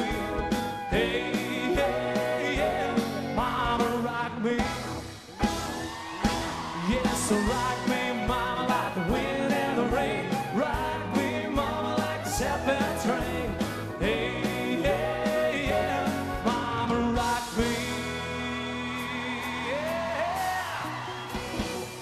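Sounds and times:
person singing: 0.0s - 4.8s, 6.5s - 20.5s
country-rock band playing: 0.0s - 22.0s.

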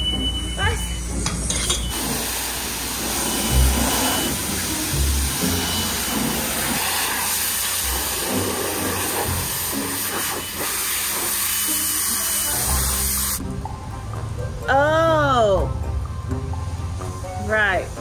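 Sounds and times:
pressure washer spraying water: 1.9s - 13.4s.

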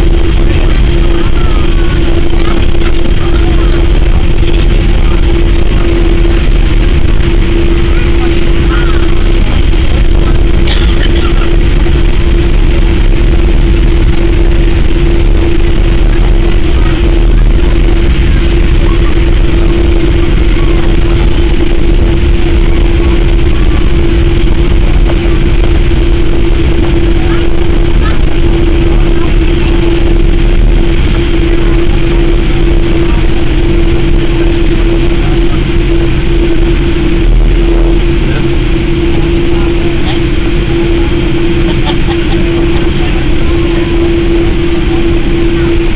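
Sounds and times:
airplane engine drone: 0.0s - 45.9s.

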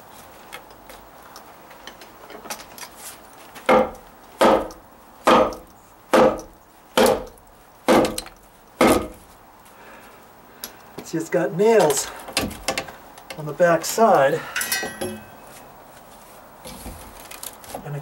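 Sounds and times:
hammer knocking on wood: 3.7s - 5.6s.

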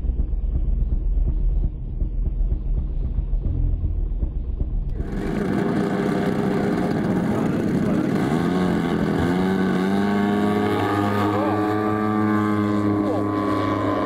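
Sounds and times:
model airplane engines running: 4.9s - 14.0s.

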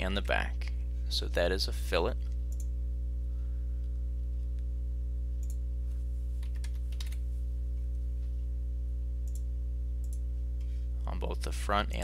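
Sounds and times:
low electrical hum: 0.0s - 12.0s
computer keyboard typing: 6.4s - 7.2s.

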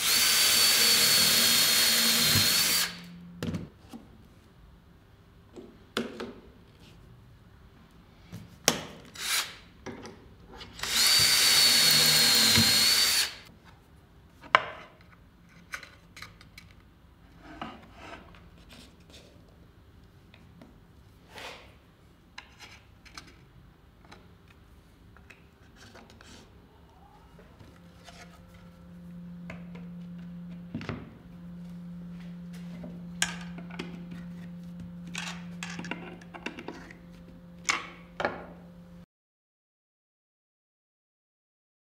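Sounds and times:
drill whining: 0.0s - 3.4s, 9.2s - 9.6s, 10.8s - 13.5s, 27.6s - 38.1s
steady low hum: 0.0s - 3.8s, 26.5s - 39.1s.

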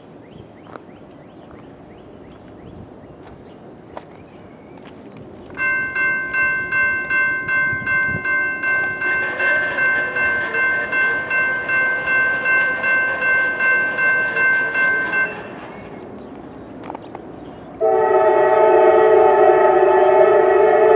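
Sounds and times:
railroad crossing bell ringing: 5.6s - 16.2s.

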